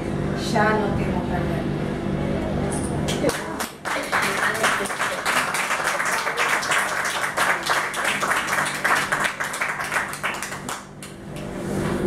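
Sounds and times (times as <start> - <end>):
audience applauding: 3.2 - 11.5.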